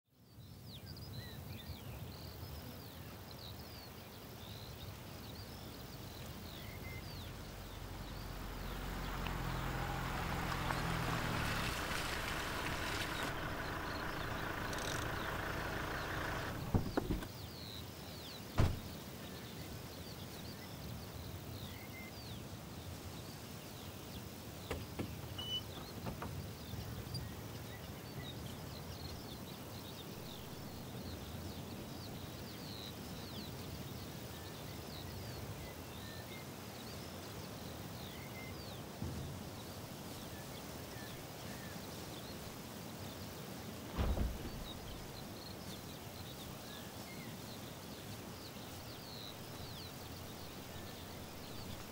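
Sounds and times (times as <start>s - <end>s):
bird chirps: 4.5s - 19.5s, 24.6s - 29.2s
wind rumble: 6.0s - 17.3s, 43.9s - 45.4s
distant noise: 6.6s - 17.3s, 18.6s - 18.9s, 43.9s - 45.4s
dull thumps: 9.0s - 17.3s, 18.6s - 18.9s, 43.9s - 45.3s.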